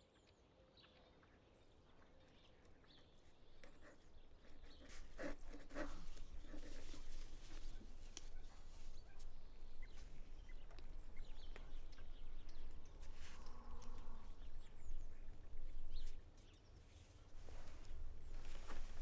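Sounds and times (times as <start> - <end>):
small scattered ticks: 1.9 - 16.6.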